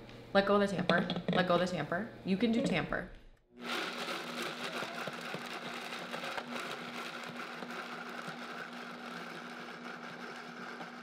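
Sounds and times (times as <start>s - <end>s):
blender motor running: 3.6s - 11.0s.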